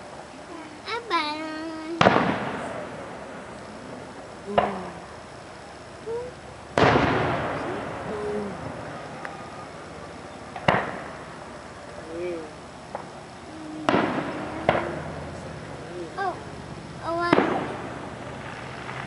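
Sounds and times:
distant fireworks booming: 0:01.9 - 0:05.2, 0:06.7 - 0:11.9, 0:12.8 - 0:19.0
rumbling echo: 0:06.7 - 0:11.6.

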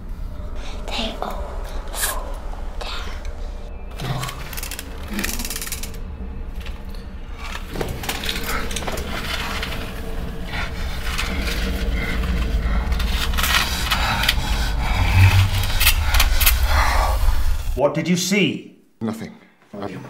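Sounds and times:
low rumble: 0:00.0 - 0:17.8
crackling scraping noise: 0:03.9 - 0:17.8
heavy low hit: 0:06.2 - 0:17.8.

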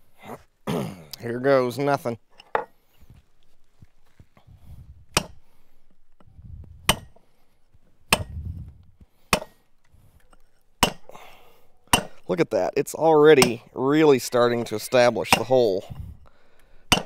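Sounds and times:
hammer striking steel drill: 0:06.9 - 0:07.2, 0:08.1 - 0:08.4, 0:09.3 - 0:09.6, 0:10.3 - 0:11.1.

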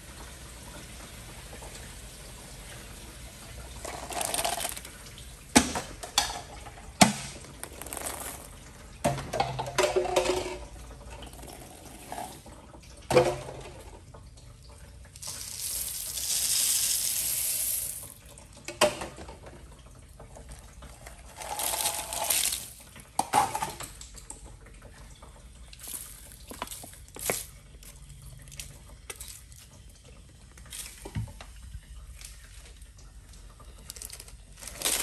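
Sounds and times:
small pieces pouring into toilet: 0:03.7 - 0:05.0, 0:07.0 - 0:08.9, 0:11.2 - 0:12.4, 0:15.2 - 0:18.3, 0:20.8 - 0:23.6, 0:25.8 - 0:27.5, 0:33.8 - 0:35.0.

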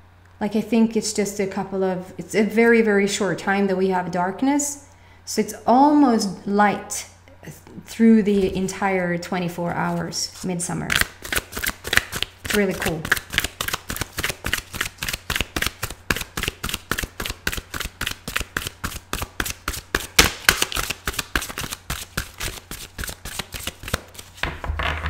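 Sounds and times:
cards being shuffled: 0:09.8 - 0:24.6.

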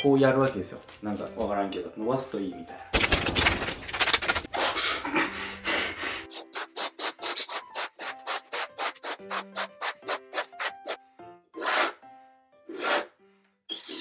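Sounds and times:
balloon being stretched: 0:06.2 - 0:11.0.

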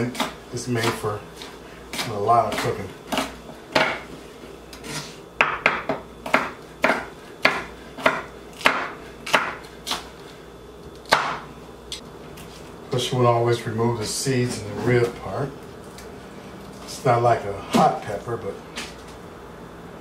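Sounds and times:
knife chopping on wooden board: 0:00.0 - 0:04.1, 0:04.8 - 0:10.1, 0:11.1 - 0:11.5.

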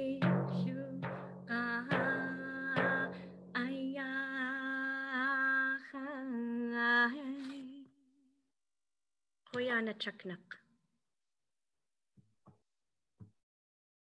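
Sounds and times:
deep drum strikes: 0:00.0 - 0:03.7
woman singing with vibrato: 0:00.0 - 0:08.0.

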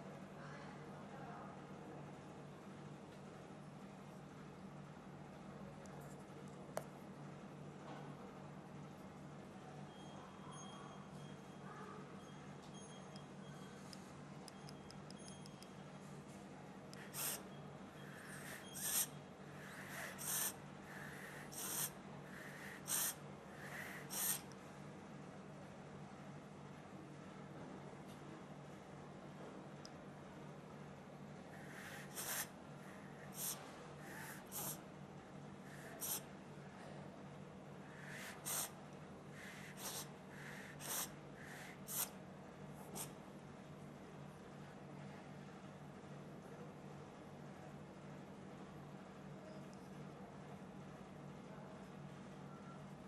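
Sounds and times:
soft inhaling hiss: 0:17.0 - 0:17.4, 0:18.0 - 0:24.5, 0:31.5 - 0:34.8, 0:35.6 - 0:36.3, 0:37.8 - 0:42.2
puffs of breath blowing out: 0:18.0 - 0:24.4, 0:37.9 - 0:38.7
person blowing out vapor: 0:21.5 - 0:23.1, 0:23.7 - 0:24.4.

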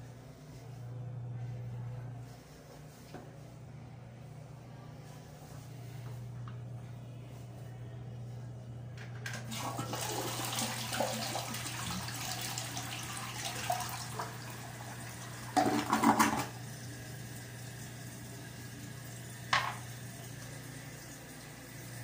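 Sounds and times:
toilet flushing: 0:09.2 - 0:22.0
toilet refilling hiss: 0:09.5 - 0:18.4.

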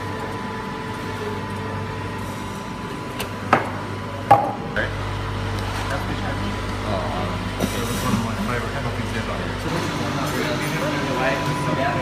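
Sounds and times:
steady background noise: 0:00.0 - 0:12.0
cups knocking on a counter: 0:04.3 - 0:04.6.

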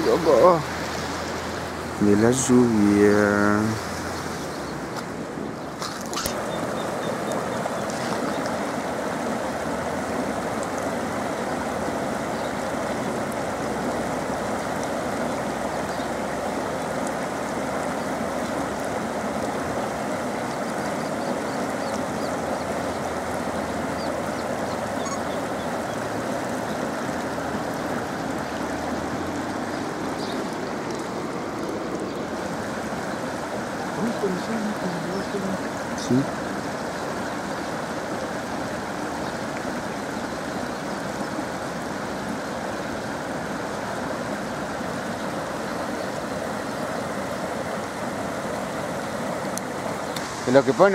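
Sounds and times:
muddy floodwater rushing: 0:00.0 - 0:50.9.

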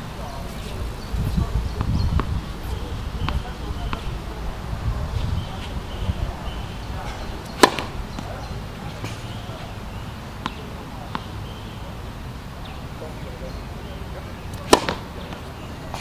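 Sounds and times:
wind rumble on microphone: 0:00.0 - 0:10.1
tennis ball pop: 0:07.4 - 0:11.3, 0:14.5 - 0:16.0
ball bouncing on court: 0:07.5 - 0:08.4, 0:10.4 - 0:11.3, 0:14.6 - 0:15.5.

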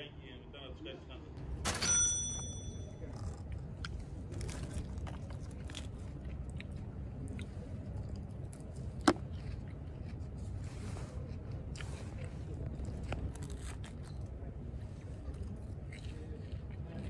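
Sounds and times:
person chewing: 0:03.4 - 0:17.0.

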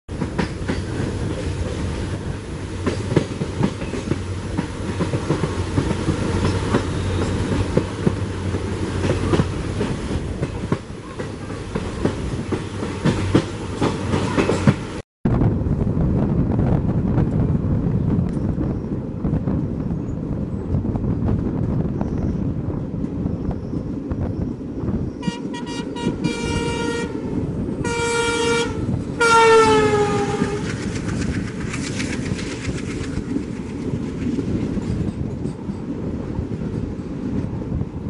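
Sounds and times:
train coaches rushing past: 0:00.1 - 0:15.0, 0:21.9 - 0:38.0
train rumble and clatter: 0:00.1 - 0:38.0
wind on microphone: 0:00.1 - 0:38.0
locomotive horn blasts: 0:25.2 - 0:30.6.

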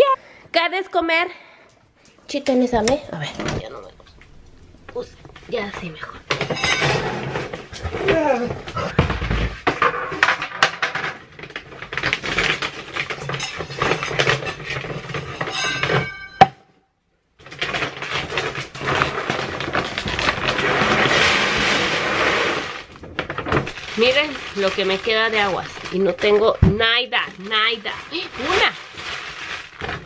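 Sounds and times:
plastic bag crinkling and tearing: 0:11.0 - 0:15.5, 0:17.4 - 0:30.0.

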